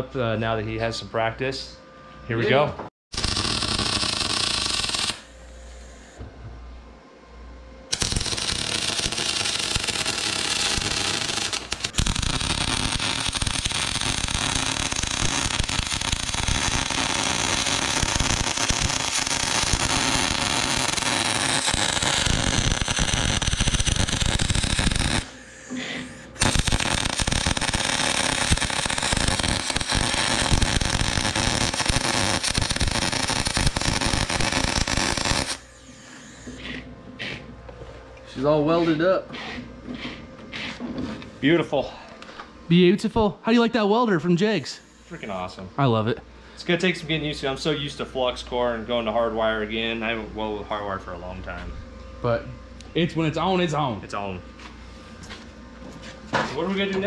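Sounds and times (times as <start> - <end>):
welder arc crackling: 3.1 - 5.9, 7.9 - 25.3, 26.4 - 35.7.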